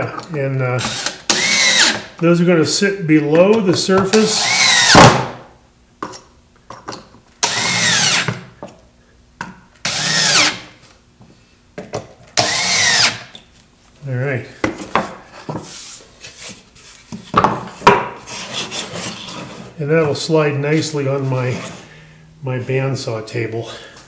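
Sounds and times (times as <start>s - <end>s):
cordless drill driving screws: 0.8s - 2.1s, 4.3s - 5.1s, 7.4s - 8.4s, 9.8s - 10.6s, 12.4s - 13.2s.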